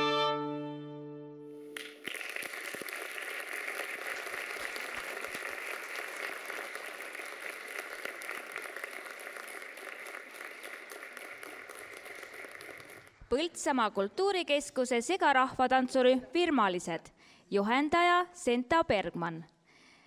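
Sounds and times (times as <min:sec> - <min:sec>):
audience applauding: 0:01.7 - 0:13.2.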